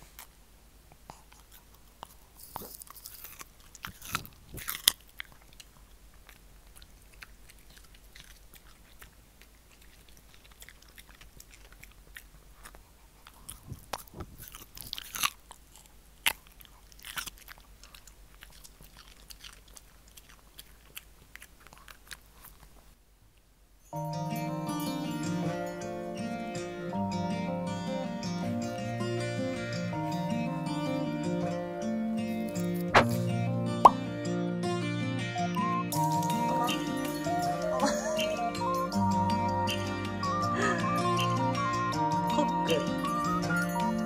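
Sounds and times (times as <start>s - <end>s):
dog crunching a chew treat: 0.0s - 23.0s.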